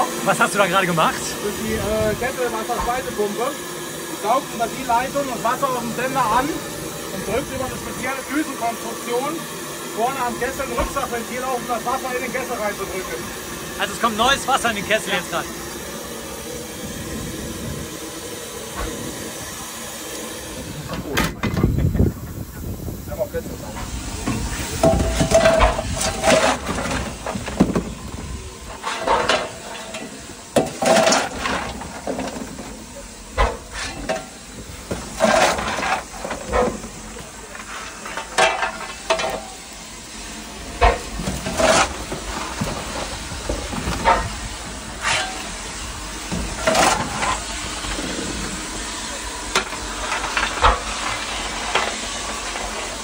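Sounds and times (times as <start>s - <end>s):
steam hissing: 0.0s - 53.0s
locomotive puffs and knocks: 20.4s - 53.0s.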